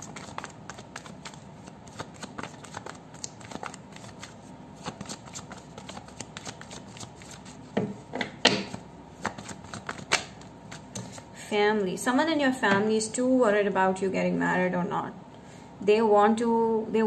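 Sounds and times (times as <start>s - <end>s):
cards being shuffled: 0.0s - 7.6s, 8.7s - 11.2s.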